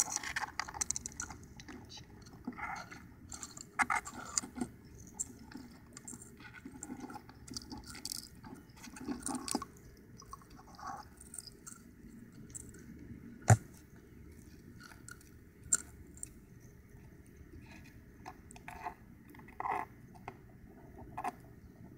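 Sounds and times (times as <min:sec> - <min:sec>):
shell scraping and clicking: 0:00.0 - 0:16.7.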